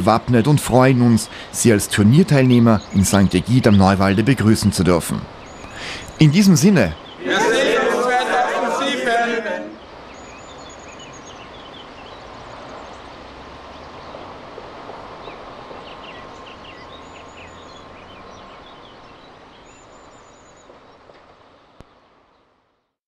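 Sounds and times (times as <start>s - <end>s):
small birds chirping and trilling: 0.3s - 7.2s, 9.8s - 14.3s, 15.2s - 21.8s.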